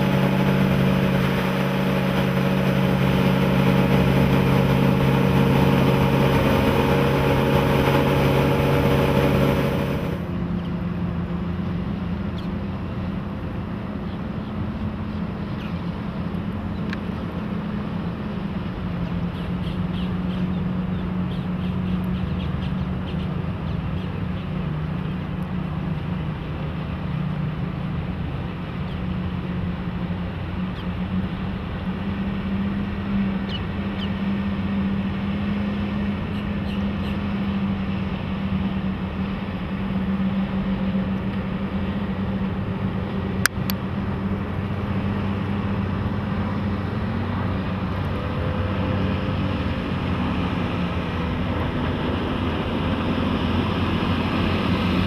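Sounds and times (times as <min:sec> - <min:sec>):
boat engine: 0:00.0 - 0:55.0.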